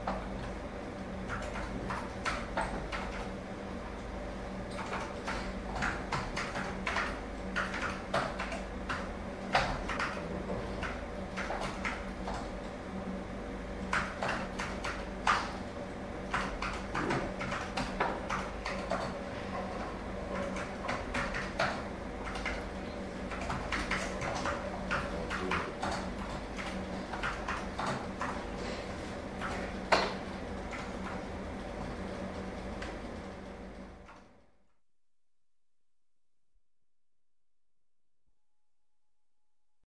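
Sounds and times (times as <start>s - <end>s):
steady low hum: 0.0s - 34.4s
knocks taps and clicks: 16.2s - 19.7s.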